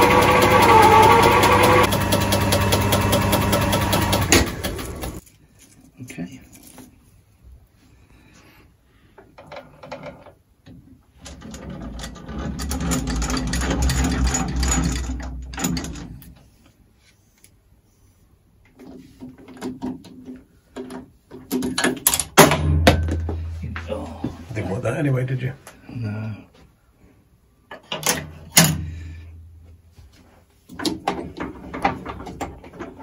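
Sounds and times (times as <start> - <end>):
metal lathe running: 0.0 - 5.2.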